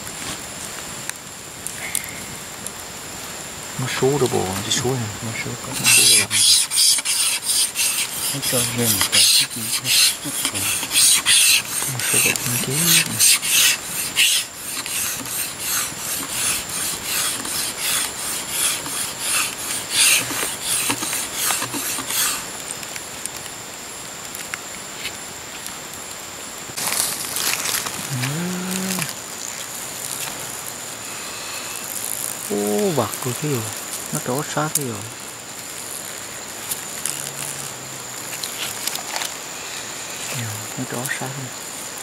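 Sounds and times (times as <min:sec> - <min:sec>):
dry tinder crackling and rustling: 0:04.0 - 0:23.6, 0:26.7 - 0:31.0, 0:31.8 - 0:40.4.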